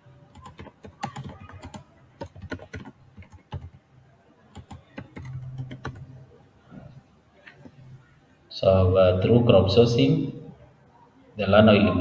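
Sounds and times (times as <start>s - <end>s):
keyboard typing clicks: 0.3s - 3.8s, 4.5s - 6.1s.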